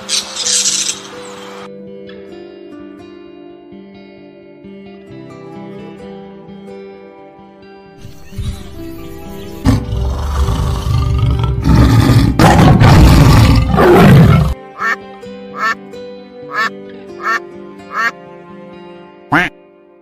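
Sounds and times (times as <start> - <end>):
soft guitar music: 0.5 - 12.4, 13.0 - 20.0
tiger roaring: 9.6 - 14.6
flamingo honking calls: 14.8 - 15.0, 15.6 - 15.8, 16.5 - 18.1.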